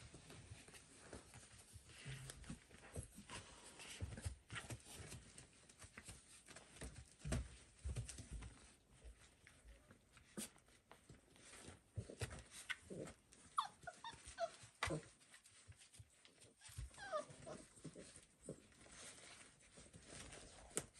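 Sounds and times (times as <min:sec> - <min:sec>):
paws scuffling on bedding: 0:00.0 - 0:20.9
puppy squeaks: 0:13.5 - 0:15.0, 0:16.6 - 0:17.6
puppies whimpering: 0:13.5 - 0:15.1, 0:16.6 - 0:17.7.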